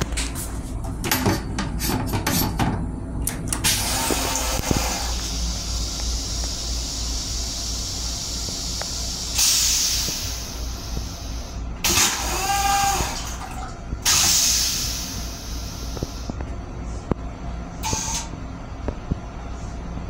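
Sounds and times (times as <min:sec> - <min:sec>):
toilet rinse water spraying: 0:03.6 - 0:16.3
train low hum: 0:05.0 - 0:11.8.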